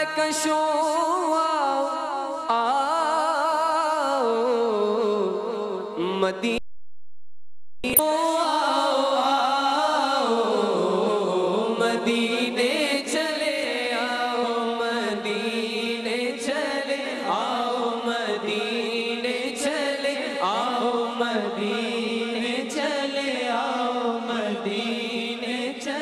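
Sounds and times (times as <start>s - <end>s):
men singing together: 8.6s - 26.0s.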